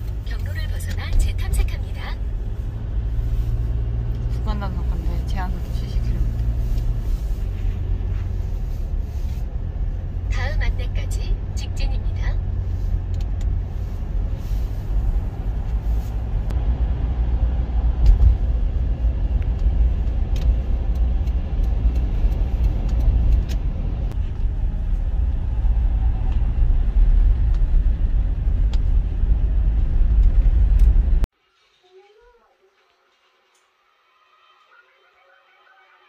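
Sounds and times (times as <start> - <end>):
car road noise rumble: 0.0 - 31.3.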